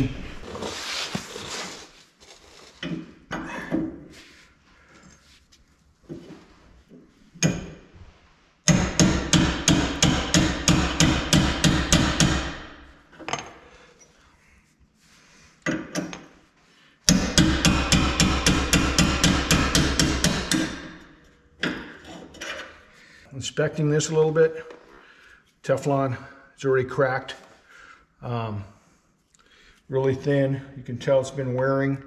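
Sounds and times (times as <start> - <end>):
hammer striking metal: 8.7 - 12.8, 17.1 - 22.0.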